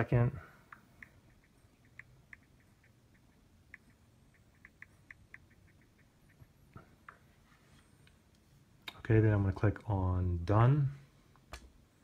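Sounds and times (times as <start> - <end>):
touchscreen keyboard typing ticks: 0.7 - 7.2.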